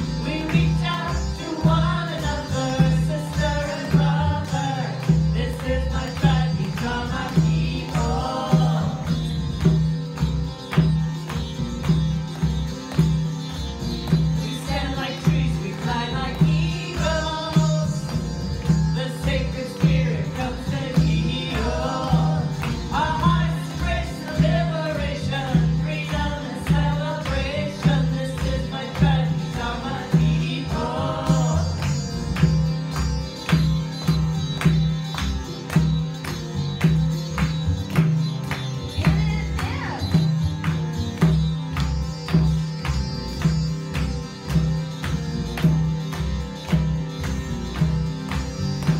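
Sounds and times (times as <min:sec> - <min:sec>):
hand drum beat: 0:00.0 - 0:48.9
harmonium: 0:00.0 - 0:48.9
low droning bass line: 0:00.0 - 0:48.9
women singing a chant: 0:05.8 - 0:09.2, 0:19.1 - 0:31.8.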